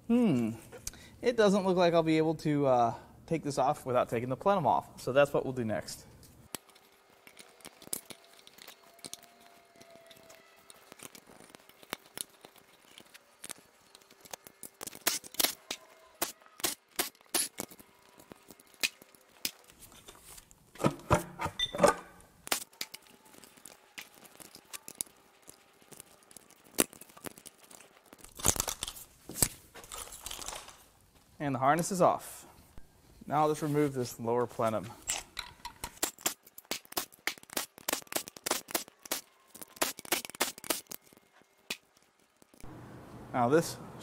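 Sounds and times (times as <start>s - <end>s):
plastic connectors clicking and rattling: 6.2s - 20.2s, 22.4s - 30.8s, 35.0s - 42.6s.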